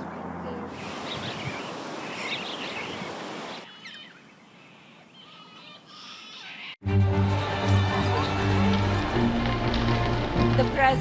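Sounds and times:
parrots chirping: 3.6 - 6.8.

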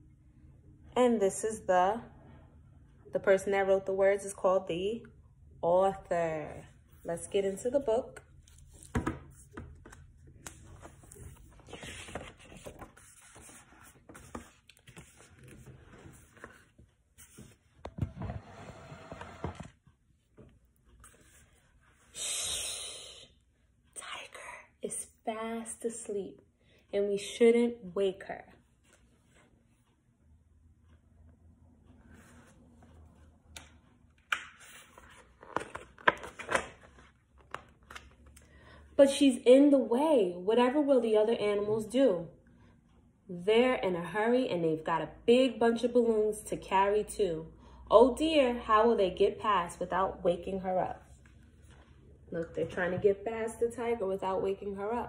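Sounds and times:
book pages rustling: 8.4 - 19.8, 20.4 - 22.1, 32.1 - 38.3.

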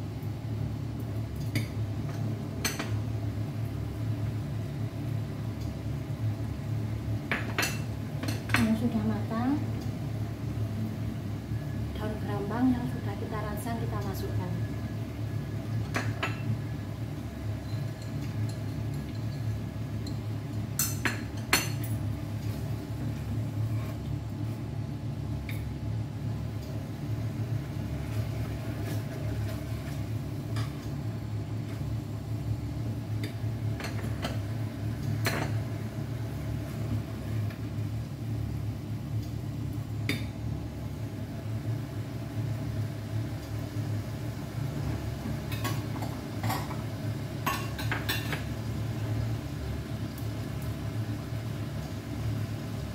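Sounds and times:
kitchen fan humming: 0.0 - 52.9
spatula scraping in a pan: 23.6 - 24.0.

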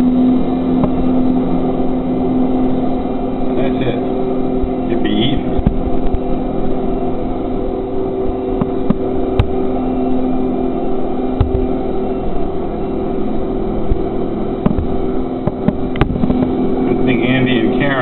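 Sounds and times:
diesel engine running: 0.0 - 18.0.

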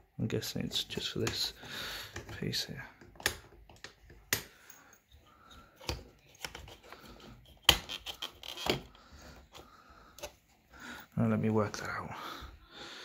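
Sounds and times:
plastic clicks and knocks: 2.1 - 4.5.

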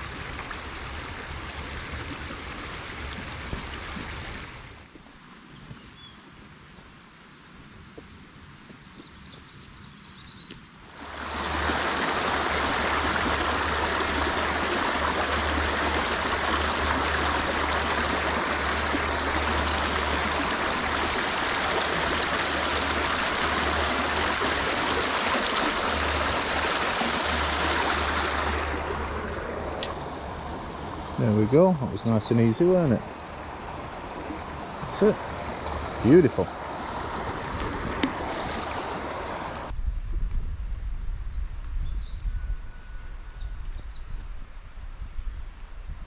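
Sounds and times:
river water rushing: 10.9 - 39.7.

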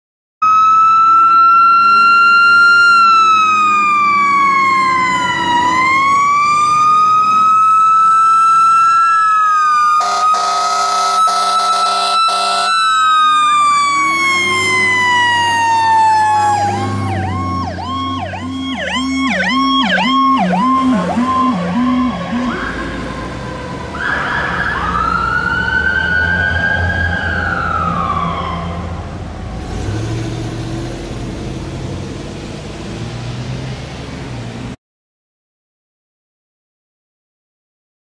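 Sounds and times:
fire engine siren wailing: 0.4 - 34.0
diesel engine rumble: 3.4 - 34.8
air horn blasts: 10.0 - 12.8.

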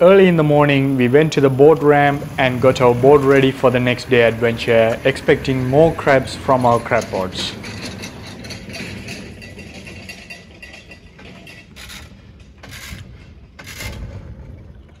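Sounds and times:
boat gear rattling and clattering: 0.0 - 15.0.

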